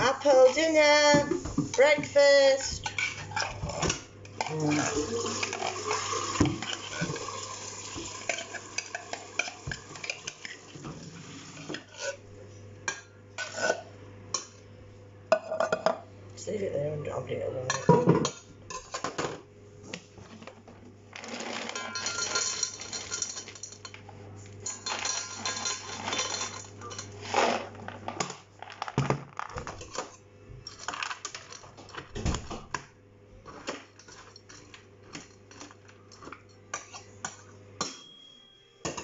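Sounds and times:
kibble rattling into metal bowls: 21.1 - 23.9
kibble stirred by hand: 21.2 - 23.8.

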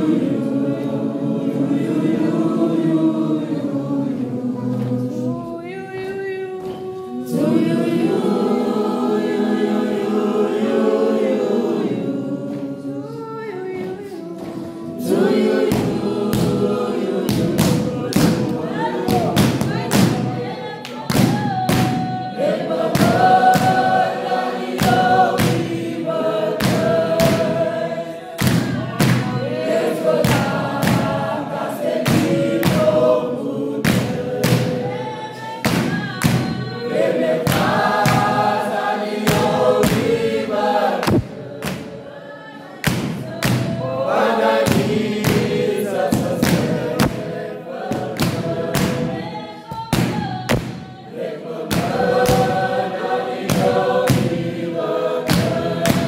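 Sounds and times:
group singing gospel harmony: 0.0 - 56.0
hand pads struck with palm: 15.6 - 20.4, 21.0 - 24.2, 24.8 - 27.7, 28.4 - 29.4, 30.2 - 31.4, 32.0 - 33.0, 33.8 - 35.0, 35.6 - 36.8, 37.4 - 40.4, 41.0 - 42.0, 42.8 - 43.9, 44.5 - 51.0, 51.7 - 52.6, 53.5 - 54.6, 55.2 - 56.0
hand claps: 15.6 - 27.7, 28.4 - 33.0, 33.8 - 35.0, 35.6 - 42.0, 42.8 - 50.9, 51.7 - 54.5, 55.2 - 56.0.

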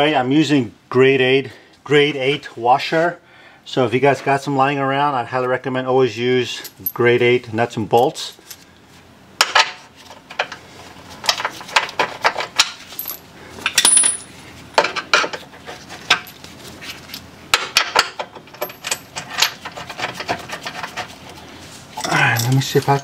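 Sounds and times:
small metal hardware clinking: 13.0 - 15.0, 17.8 - 19.6, 22.0 - 23.0.

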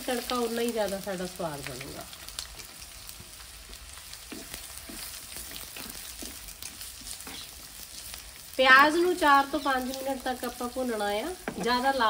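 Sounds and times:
onions sizzling in oil: 0.0 - 12.0
spatula scraping: 4.2 - 8.1.

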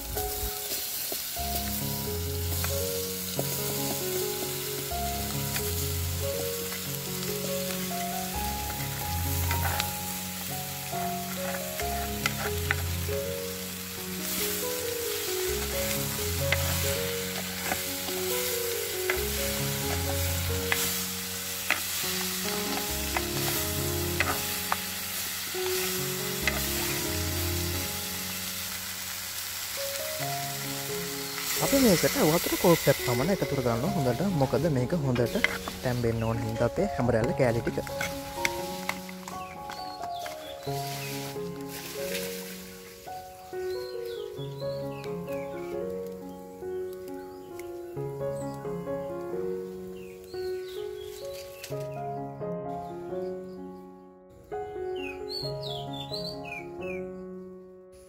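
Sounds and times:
food sizzling in hot oil: 0.0 - 45.4
soft background music: 0.0 - 58.0.

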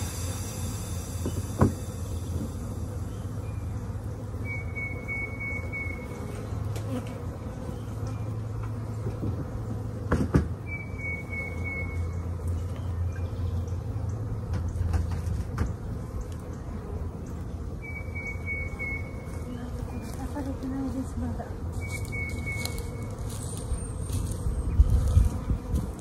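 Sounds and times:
high whistled note: 0.0 - 2.8
honey bees buzzing: 0.0 - 26.0.

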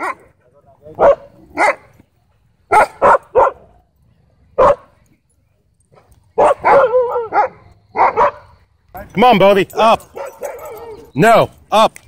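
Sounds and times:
dog barking: 0.0 - 0.3, 0.9 - 1.9, 2.7 - 3.7, 4.6 - 4.9, 6.4 - 8.5, 10.1 - 11.1.

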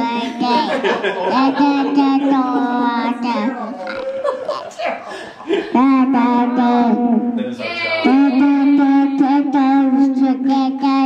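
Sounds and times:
toddler singing into toy microphone: 8.0 - 11.0.

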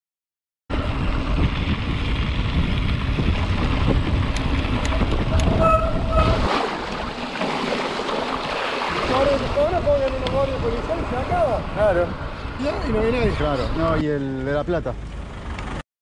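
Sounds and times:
bike tyres rolling on gravel: 0.7 - 6.2
wind buffeting microphone: 0.7 - 14.0
short squeaks: 5.3 - 6.5.

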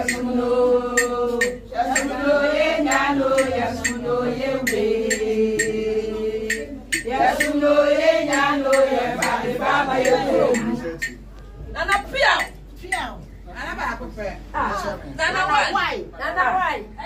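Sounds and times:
women chanting a slow song: 0.0 - 11.0
sharp drum beat: 2.8 - 5.8, 6.5 - 7.6.

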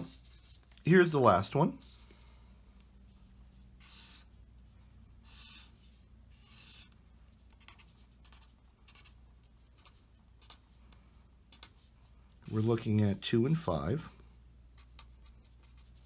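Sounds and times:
pen strokes on paper: 0.0 - 0.8, 3.1 - 4.4.

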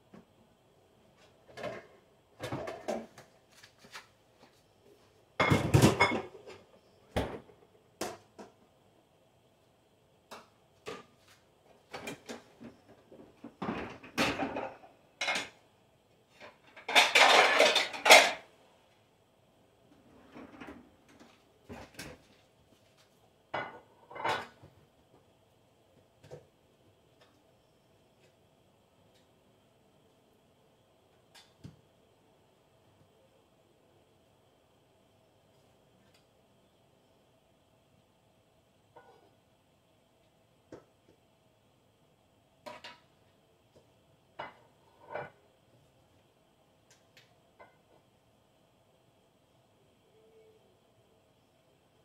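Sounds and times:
faint steady hum: 0.0 - 52.0
dishes and pots clattering: 1.5 - 3.2, 5.4 - 8.6, 13.5 - 15.6, 16.4 - 18.5, 23.5 - 24.7, 42.7 - 43.1, 44.4 - 45.4.

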